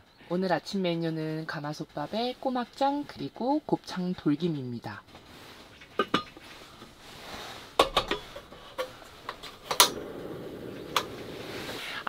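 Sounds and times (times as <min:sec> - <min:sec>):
gas burner hissing: 0:05.4 - 0:12.0
pot and lid clinking: 0:05.9 - 0:06.4
gas stove igniter click: 0:09.7 - 0:10.0.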